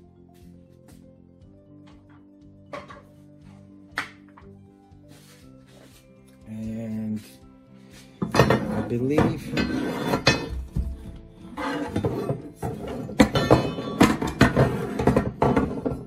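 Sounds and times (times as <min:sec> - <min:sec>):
metal tubes clattering: 0:08.2 - 0:16.0.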